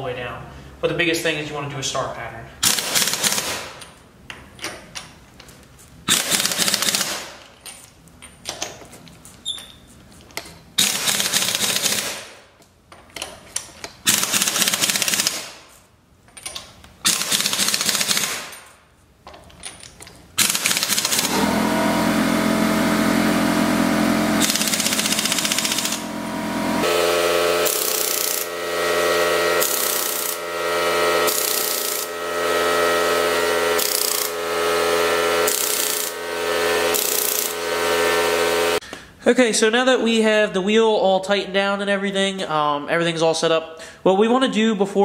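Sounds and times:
pneumatic impact wrench hammering: 0:02.6 - 0:04.0, 0:06.0 - 0:07.6, 0:10.4 - 0:12.6, 0:13.2 - 0:15.8, 0:16.4 - 0:18.8, 0:19.5 - 0:38.9.

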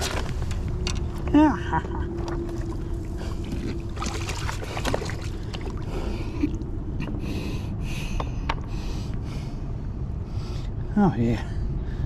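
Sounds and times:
faint steady hum: 0:00.0 - 0:12.0
low rumble: 0:00.0 - 0:12.0
river water sloshing against rocks: 0:02.2 - 0:05.9.

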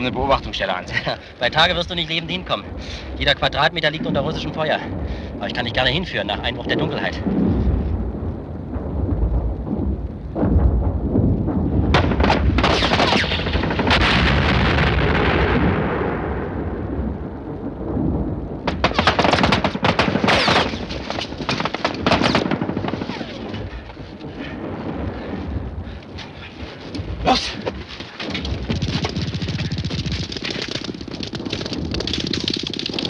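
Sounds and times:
artillery and explosions rumble: 0:00.0 - 0:33.0
machine-gun fire: 0:11.7 - 0:15.3, 0:18.6 - 0:23.8, 0:28.2 - 0:33.0.

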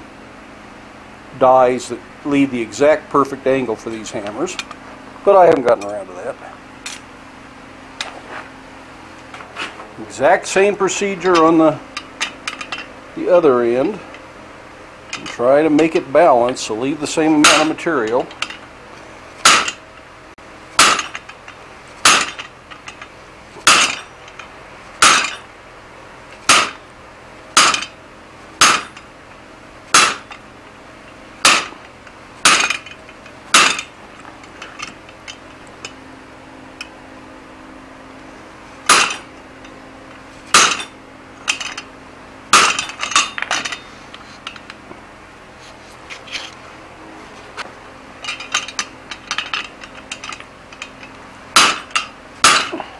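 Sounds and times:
hammer striking steel: 0:17.4 - 0:18.6, 0:19.4 - 0:19.8, 0:20.8 - 0:21.2, 0:22.0 - 0:22.4, 0:23.6 - 0:24.1, 0:25.0 - 0:25.4, 0:26.5 - 0:26.8, 0:27.6 - 0:28.0, 0:28.6 - 0:29.0, 0:29.9 - 0:30.4, 0:31.4 - 0:31.8, 0:32.4 - 0:33.9, 0:38.9 - 0:39.3, 0:40.5 - 0:41.8, 0:42.5 - 0:43.8, 0:51.6 - 0:52.9.

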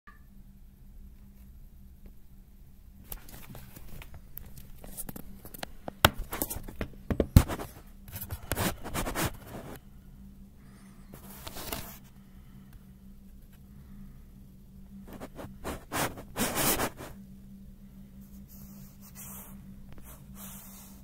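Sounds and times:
handling scraping and rustling: 0:03.1 - 0:09.8, 0:11.1 - 0:12.1
scratchy rubbing: 0:07.2 - 0:09.8, 0:15.1 - 0:17.2.

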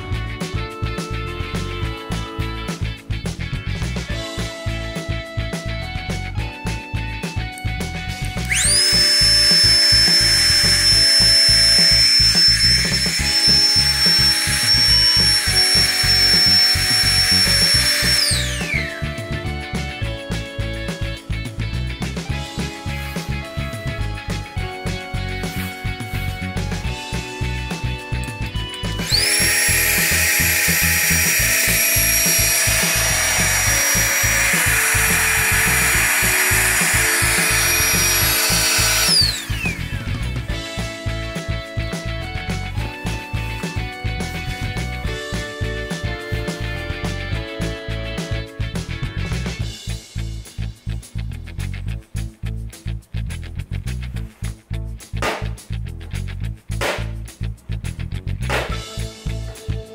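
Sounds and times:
background music: 0:00.0 - 0:59.9
electric air pump motor whine: 0:08.1 - 0:20.2, 0:25.4 - 0:26.9, 0:28.4 - 0:41.6.

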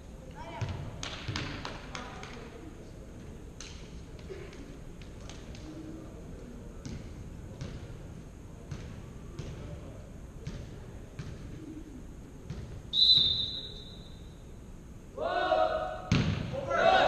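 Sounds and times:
volleyball bouncing on wooden floor: 0:00.6 - 0:02.4, 0:08.7 - 0:09.7, 0:16.1 - 0:16.5.

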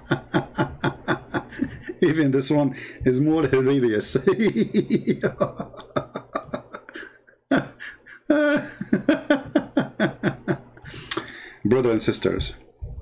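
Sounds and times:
man speaking fast syllables: 0:01.9 - 0:04.6, 0:11.6 - 0:13.0.

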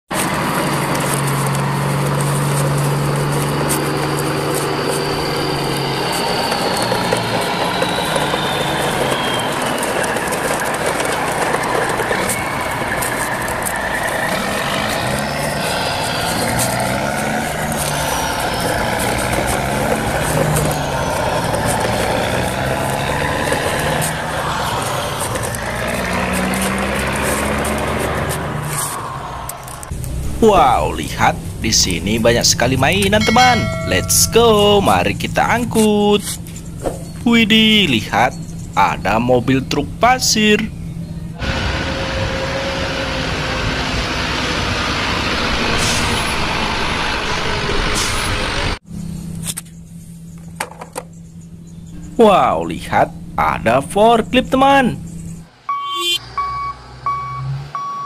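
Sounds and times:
heavy truck engine running: 0:00.1 - 0:52.5
high whistling tone gliding down: 0:03.8 - 0:16.8, 0:32.8 - 0:35.1.

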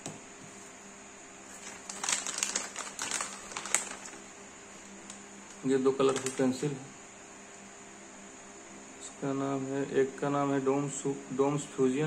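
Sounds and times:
plastic pouch crinkling: 0:01.5 - 0:06.6.

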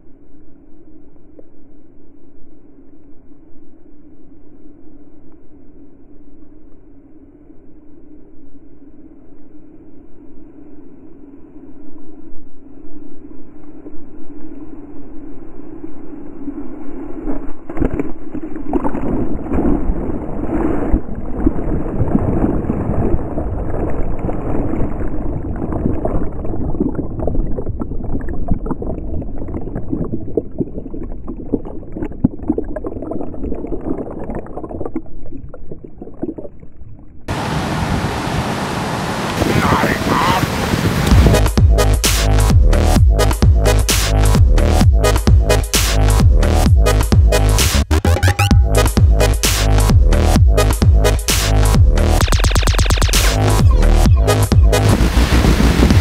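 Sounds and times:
underwater churning surf: 0:12.7 - 0:46.2, 0:47.0 - 0:56.0
music: 0:41.1 - 0:56.0.

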